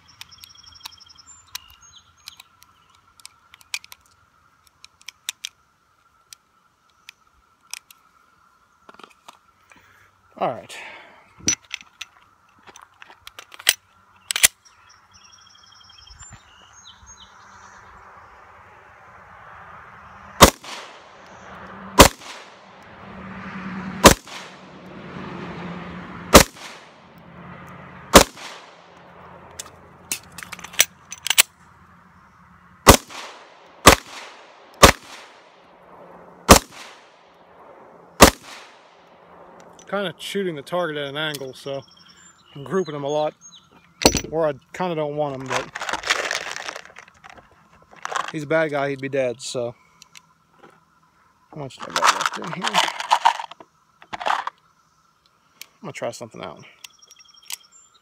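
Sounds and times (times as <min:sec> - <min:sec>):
sharp clicks: 0:13.2 - 0:14.6
pistol shots: 0:20.4 - 0:21.2, 0:22.0 - 0:22.6, 0:24.0 - 0:24.6, 0:26.3 - 0:26.9, 0:28.1 - 0:28.8, 0:32.9 - 0:35.5, 0:36.5 - 0:37.1, 0:38.2 - 0:38.8.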